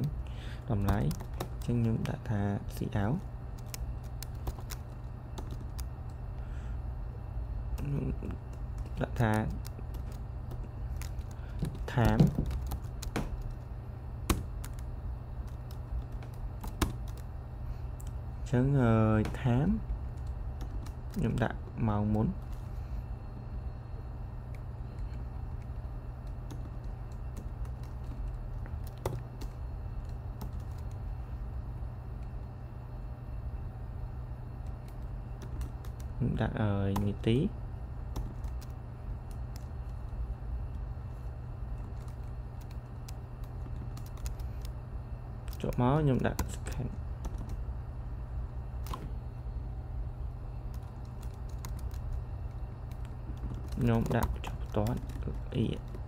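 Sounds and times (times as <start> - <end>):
steady low hum: 0.0 - 56.0
keyboard keystrokes: 3.6 - 5.9, 7.8 - 13.6, 14.2 - 17.2, 41.9 - 44.7.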